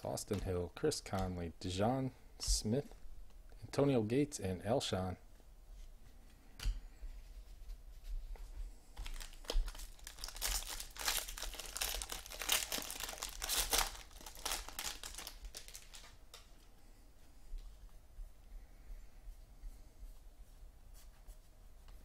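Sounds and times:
foil wrapper crinkling and tearing: 9.0s - 16.2s.

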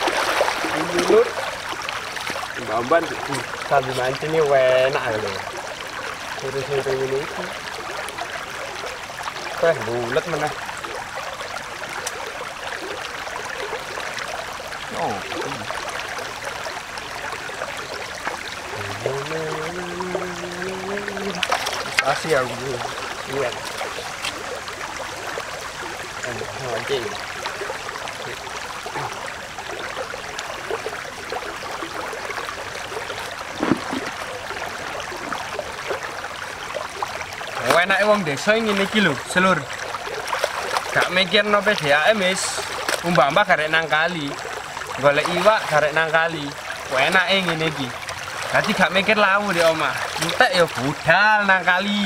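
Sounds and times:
stream running over rocks: 0.0s - 52.0s
brief thump: 33.6s - 34.1s.

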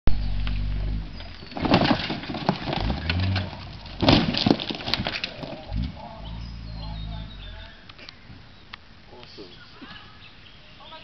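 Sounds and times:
low steady hum: 0.1s - 10.8s
crunching metal and glass impacts: 1.1s - 6.6s.

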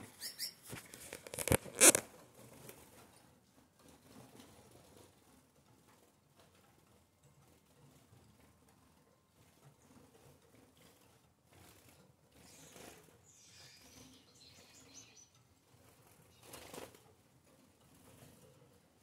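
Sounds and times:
rustle of wings: 9.9s - 15.1s, 15.7s - 18.8s
finches calling: 12.5s - 15.4s.

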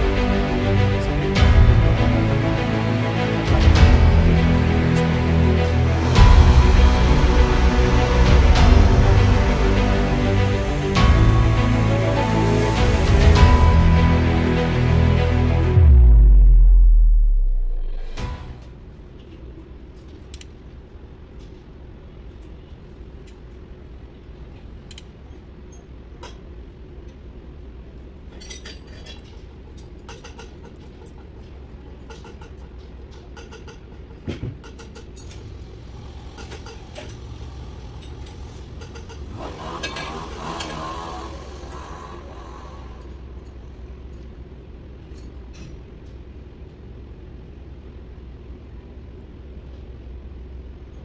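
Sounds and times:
rushing noise: 0.0s - 19.0s, 35.4s - 43.9s
steady low hum: 0.0s - 28.3s, 41.3s - 51.0s.

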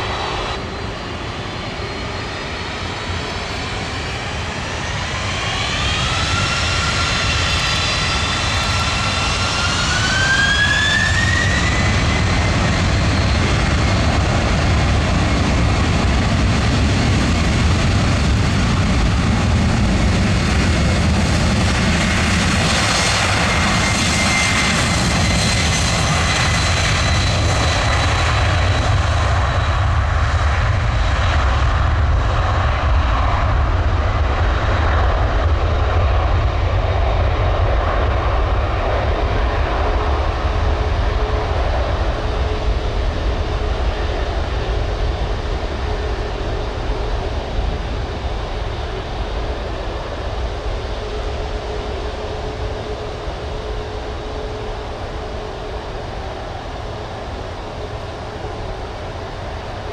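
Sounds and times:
jet engines spooling up: 0.0s - 59.9s.

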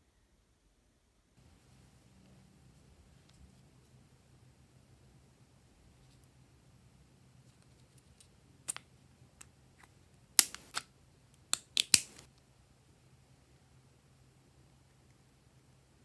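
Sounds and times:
plastic lid clicking and cracking: 11.5s - 12.2s.

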